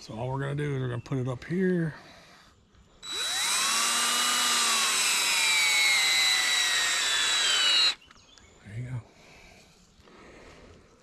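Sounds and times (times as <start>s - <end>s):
cordless drill driving a screw: 3.0s - 8.0s.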